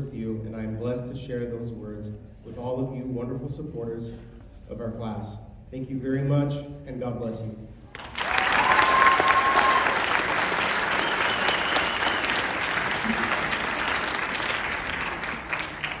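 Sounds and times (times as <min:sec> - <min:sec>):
audience applauding: 0:07.9 - 0:16.0.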